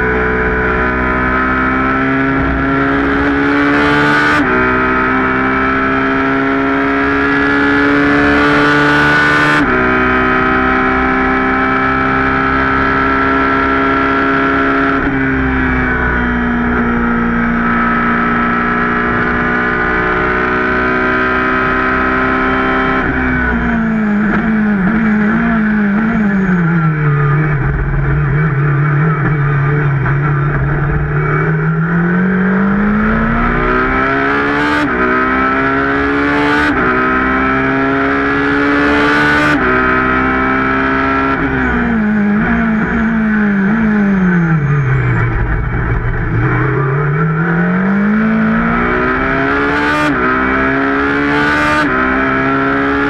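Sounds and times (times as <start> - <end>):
engine downshifting: 0.0 - 53.0
racing engine accelerating: 0.0 - 53.0.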